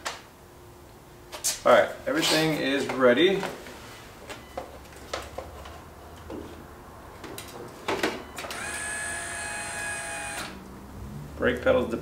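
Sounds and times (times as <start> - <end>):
electric motor whine: 8.5 - 10.6.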